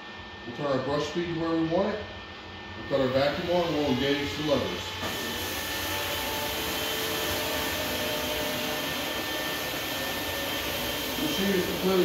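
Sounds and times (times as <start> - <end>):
floor scrubber whirring: 2.7 - 12.0.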